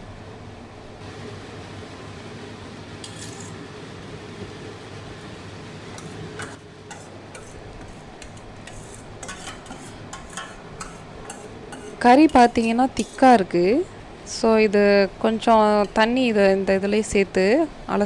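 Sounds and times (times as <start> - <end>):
steady low hum: 0.0 - 18.0
spoon scraping a steel bowl: 3.0 - 3.6, 6.9 - 13.4.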